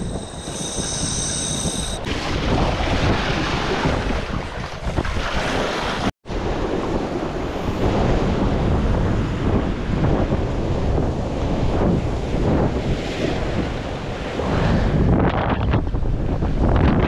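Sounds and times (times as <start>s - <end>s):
wind buffeting microphone: 0.0s - 5.6s, 6.3s - 17.0s
sea waves on shore: 0.0s - 10.0s.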